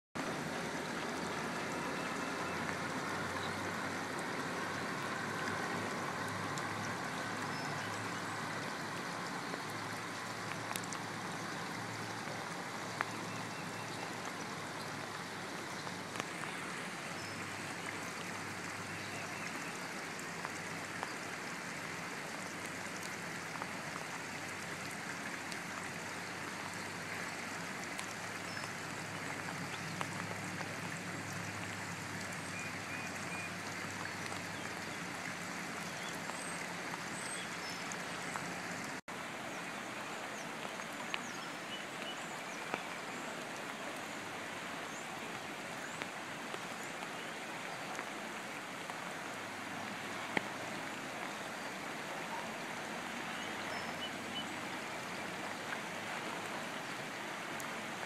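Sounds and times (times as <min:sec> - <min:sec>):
rushing creek: 0:00.2 - 0:58.0
steady rain: 0:00.2 - 0:58.0
water drops ticking: 0:00.8 - 0:16.6.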